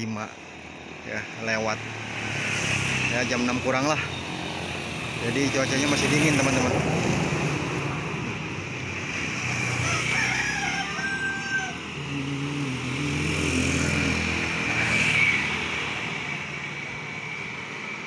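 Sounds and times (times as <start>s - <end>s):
rooster crowing: 9.4s - 12.2s
motorcycle engine passing by: 12.0s - 17.0s.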